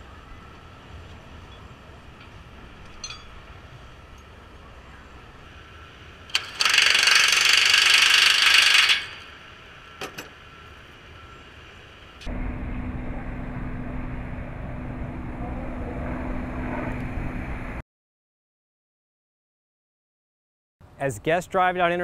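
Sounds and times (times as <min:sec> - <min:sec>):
impact wrench hammering: 0:06.3 - 0:09.3
low rumble with hum: 0:11.7 - 0:17.8.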